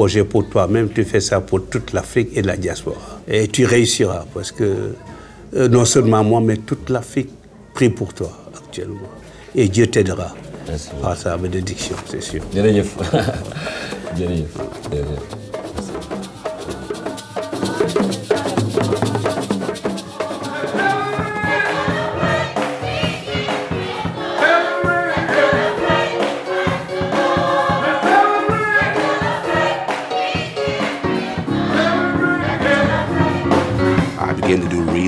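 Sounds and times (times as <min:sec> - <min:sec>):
gospel choir singing: 0:10.0 - 0:14.2, 0:15.5 - 0:35.0
rattling percussion beat: 0:10.4 - 0:35.0.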